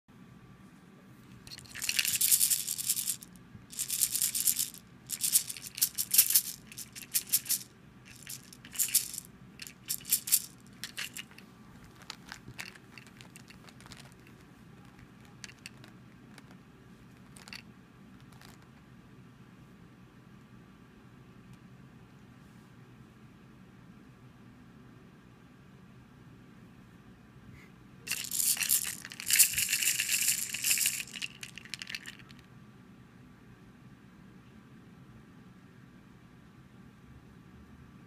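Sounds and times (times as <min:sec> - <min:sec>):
baby rattle shaking: 0:01.3 - 0:16.5, 0:17.2 - 0:17.6, 0:18.3 - 0:18.6, 0:28.1 - 0:32.5.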